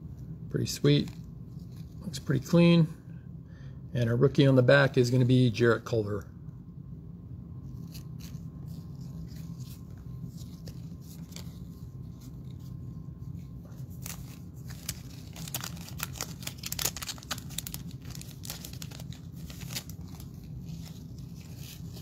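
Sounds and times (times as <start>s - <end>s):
steady low hum: 0.0s - 22.0s
plastic wrapper crinkling and tearing: 13.8s - 22.0s.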